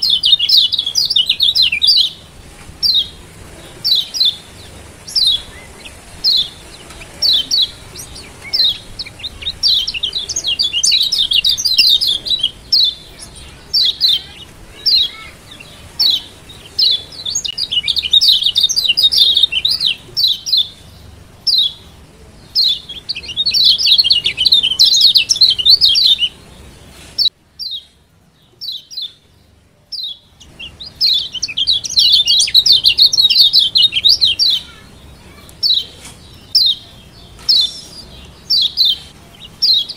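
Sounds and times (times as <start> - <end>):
bird high chip calls: 0.0 - 2.2, 2.8 - 20.8, 30.0 - 39.9
bird rapid chattering calls: 0.0 - 20.9, 30.0 - 39.9.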